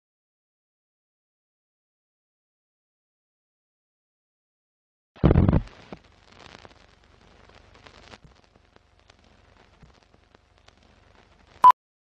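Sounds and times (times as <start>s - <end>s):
film crackle with clicks and pops: 5.2s - 11.8s.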